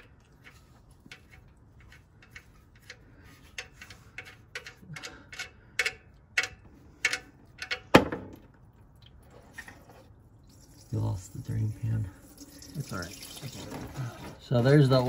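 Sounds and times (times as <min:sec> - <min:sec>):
small sharp ticks of dripping oil: 0:00.0 - 0:07.9
oil pouring into a pan: 0:09.5 - 0:14.3.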